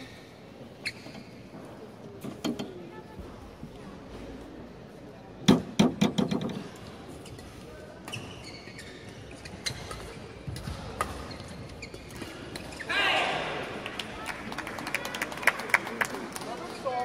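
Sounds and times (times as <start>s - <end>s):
shoe squeaks: 0.0s - 1.6s, 7.1s - 10.4s, 11.2s - 12.9s.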